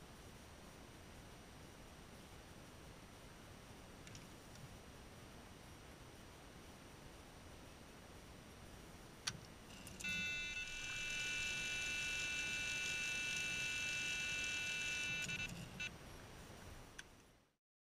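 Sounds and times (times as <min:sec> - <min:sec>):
click: 0:04.0 - 0:04.7, 0:09.2 - 0:10.1
electronic bite alarm tone: 0:10.0 - 0:15.9.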